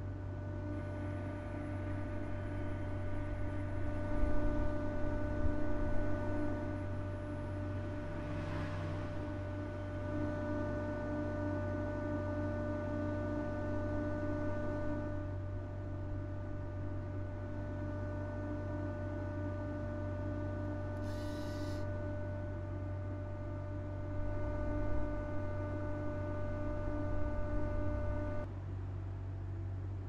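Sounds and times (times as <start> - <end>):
electrical hum: 0.0 - 28.5
high whine of motor drives: 0.0 - 30.0
brief hiss: 21.0 - 21.8.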